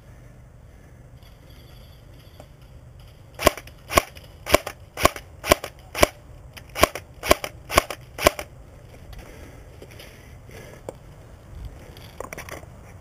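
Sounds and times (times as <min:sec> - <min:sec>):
airsoft gun shots: 0:03.4 - 0:08.5.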